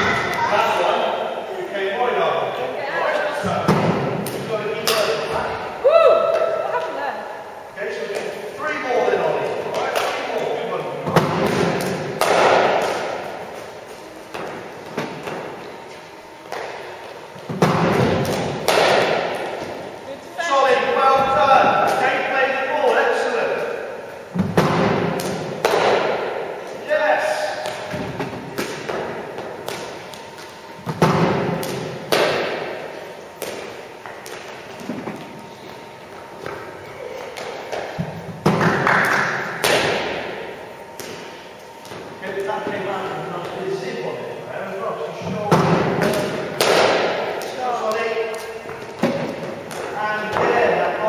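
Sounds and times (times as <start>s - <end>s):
balls bouncing with echo: 3.4s - 7.0s, 9.3s - 20.0s, 24.3s - 26.8s, 27.4s - 43.6s, 45.2s - 51.0s
cricket bat hitting ball: 11.2s - 13.0s, 17.6s - 19.4s
cricket balls knocking in echoing hall: 27.6s - 42.2s.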